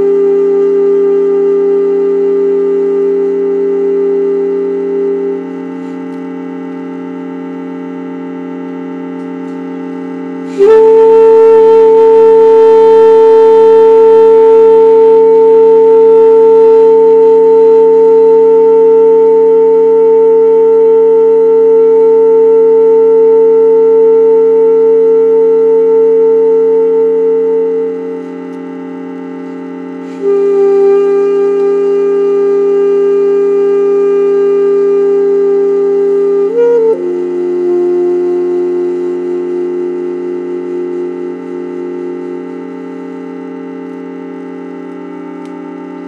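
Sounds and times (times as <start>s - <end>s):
saxophone holding long notes: 0.0s - 46.0s
sustained keyboard drone: 0.0s - 46.0s.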